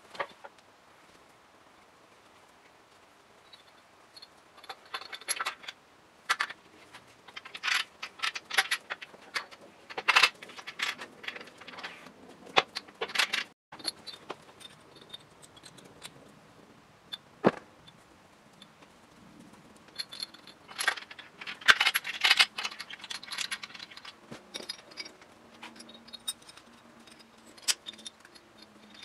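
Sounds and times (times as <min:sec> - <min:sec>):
metal engine parts clinking: 0:03.5 - 0:16.2, 0:19.9 - 0:29.0.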